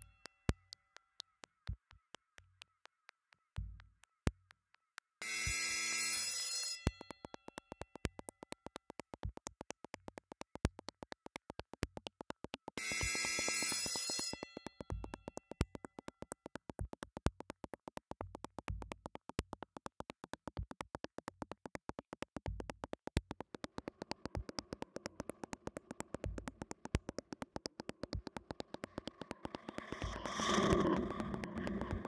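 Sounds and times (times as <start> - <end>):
fast clicking pulse: 0.0 - 32.0
hazy synth drone: 23.7 - 32.0.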